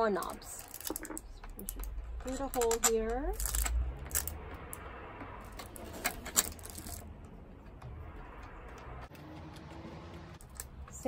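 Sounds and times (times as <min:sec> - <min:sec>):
metal parts clicking: 0:00.2 - 0:04.8, 0:05.5 - 0:07.1.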